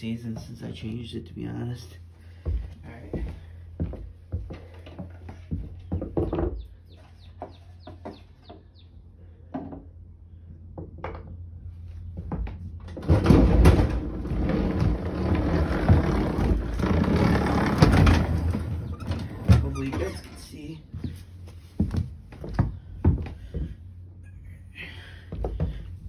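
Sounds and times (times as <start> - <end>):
lawn mower rolling on wooden floor: 12.8 - 21.2.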